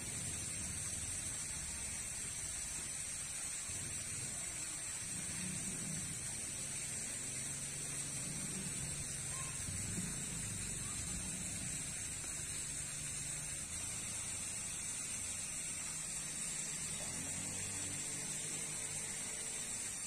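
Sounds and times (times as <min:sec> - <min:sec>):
high-pitched hiss: 0:00.0 - 0:20.0.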